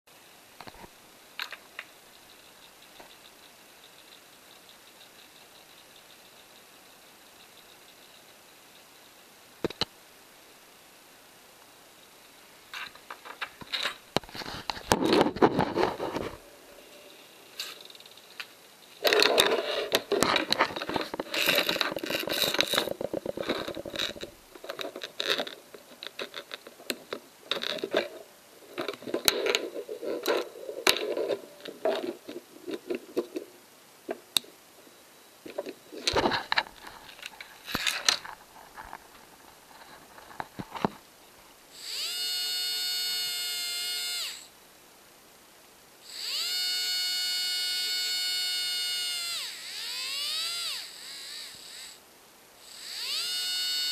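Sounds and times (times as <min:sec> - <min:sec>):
electronic parts clattering on desk: 0:12.8 - 0:16.4, 0:17.6 - 0:28.2
steady electric buzz: 0:39.8 - 0:53.9.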